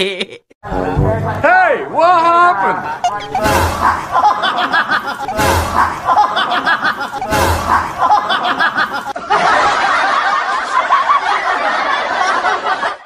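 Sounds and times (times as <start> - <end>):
people laughing and giggling: 0.0 - 0.6, 3.6 - 13.0
short burst of noise: 3.0 - 4.2.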